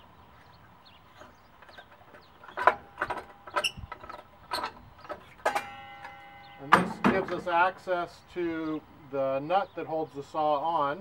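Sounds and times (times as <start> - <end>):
sheet metal clanks and knocks: 2.4 - 7.8.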